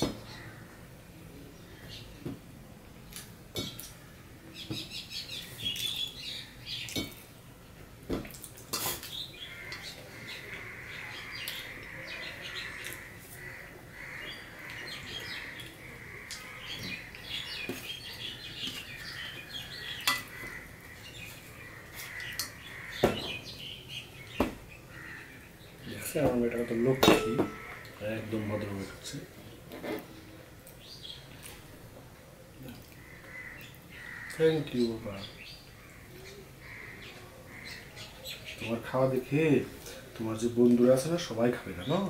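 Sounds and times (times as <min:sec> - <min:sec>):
birds chirping: 0:00.0 - 0:42.0.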